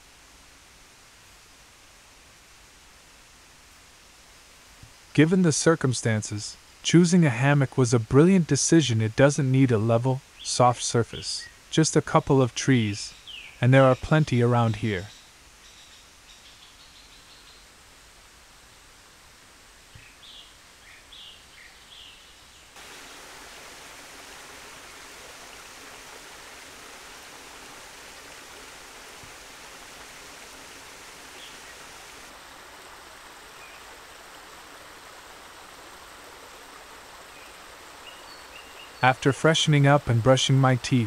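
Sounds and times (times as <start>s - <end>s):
river water rushing: 22.8s - 39.0s.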